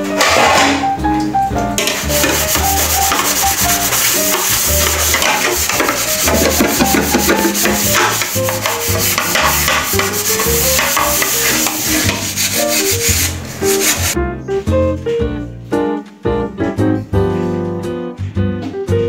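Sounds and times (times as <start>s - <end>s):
background music with bass line: 0.0s - 19.0s
metal pot scrubbed by hand: 1.8s - 14.2s.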